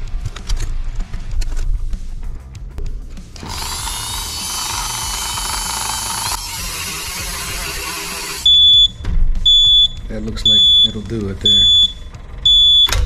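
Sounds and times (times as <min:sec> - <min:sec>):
rotary tool whining: 0:03.4 - 0:08.8.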